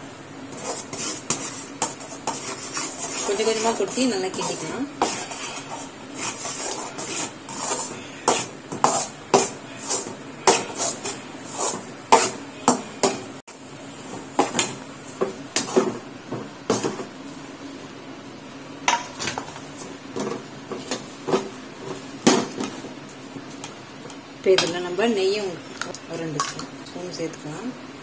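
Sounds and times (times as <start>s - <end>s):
metal spatula scraping pan: 0.5s - 13.3s.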